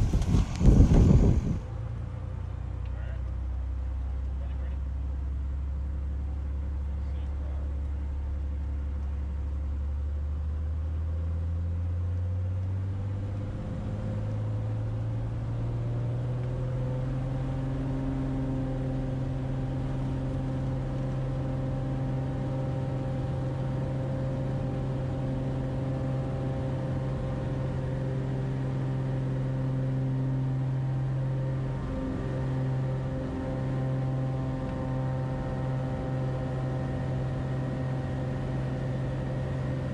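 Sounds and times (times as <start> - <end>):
plane engine and propeller: 0.0 - 39.9.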